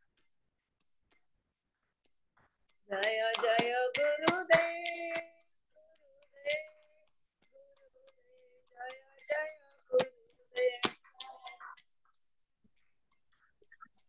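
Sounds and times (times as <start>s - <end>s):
small hand cymbals ringing: 2.7s - 13.5s
devotional singing: 2.9s - 5.2s.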